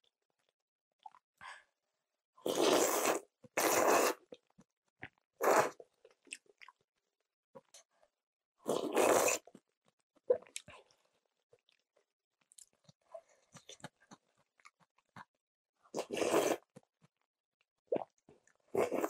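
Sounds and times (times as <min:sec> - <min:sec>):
slurping noodles: 0:02.4 - 0:04.4, 0:05.4 - 0:05.8, 0:08.6 - 0:09.6, 0:15.9 - 0:16.8, 0:18.7 - 0:19.0
wet chewing: 0:12.4 - 0:15.3.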